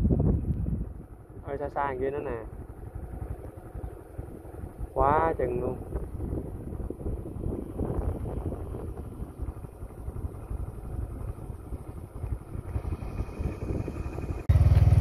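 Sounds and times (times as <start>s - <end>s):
wind on microphone: 0.0s - 1.5s, 4.6s - 14.5s
motorbike engine: 0.0s - 15.0s.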